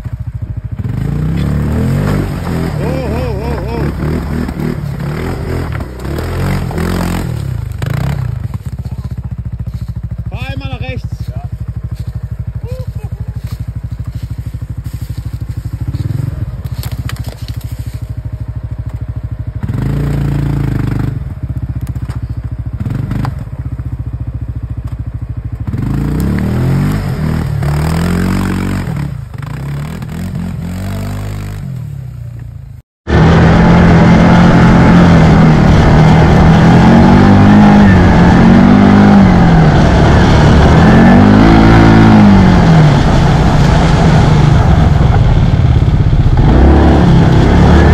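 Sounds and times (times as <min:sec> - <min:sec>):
quad bike engine revving: 0:00.0 - 0:32.3, 0:33.1 - 0:47.9
tyres churning mud: 0:00.8 - 0:10.1.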